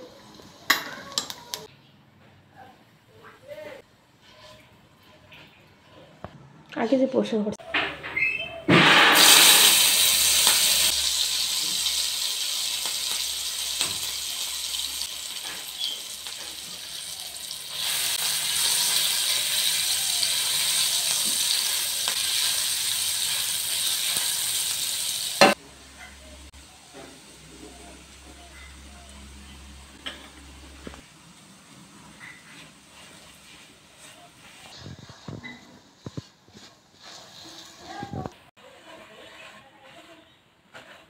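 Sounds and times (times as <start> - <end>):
food sizzling in hot oil: 0.0 - 1.7, 8.7 - 34.6, 36.0 - 39.5.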